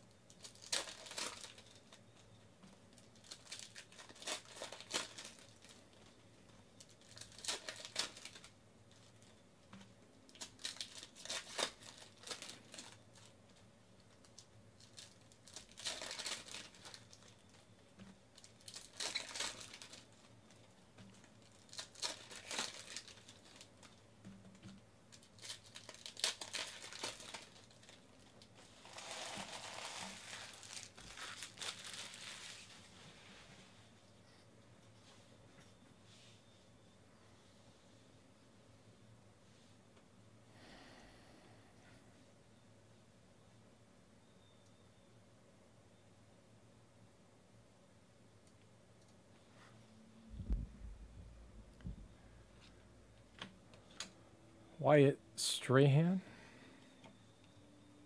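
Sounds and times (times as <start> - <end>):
wrappers crinkling and tearing: 0.3 - 2.3, 2.9 - 6.2, 6.8 - 9.4, 10.3 - 17.7, 18.3 - 24.0, 24.6 - 33.0.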